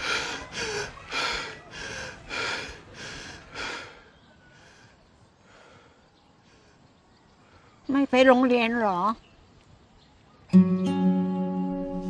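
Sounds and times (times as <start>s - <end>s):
person breathing hard: 0.0s - 6.9s
faint background noise: 0.0s - 12.0s.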